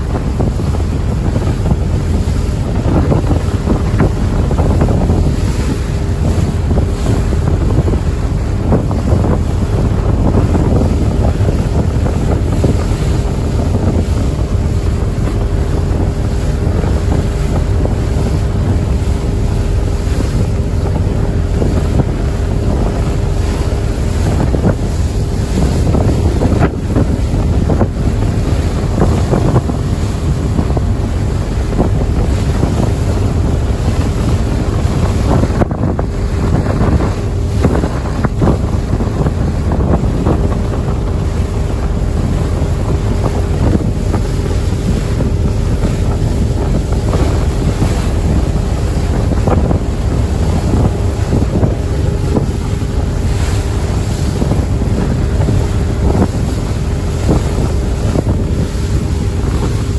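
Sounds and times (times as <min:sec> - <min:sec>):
low engine drone: 0:00.0 - 0:59.9
water rushing past hull: 0:00.0 - 0:59.9
wind buffeting microphone: 0:00.0 - 0:59.9.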